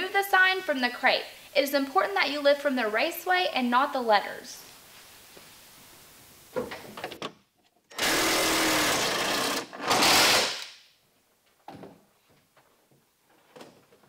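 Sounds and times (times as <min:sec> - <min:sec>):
cordless drill driving screw into wood: 0:07.9 - 0:10.8.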